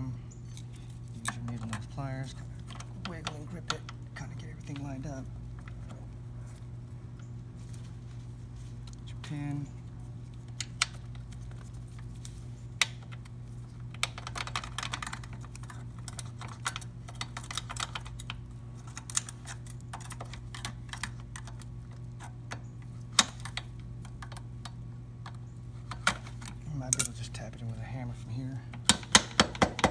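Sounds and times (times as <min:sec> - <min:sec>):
steady low hum: 0:00.0 - 0:29.9
small metal clicks and taps: 0:02.6 - 0:04.0, 0:13.9 - 0:27.2.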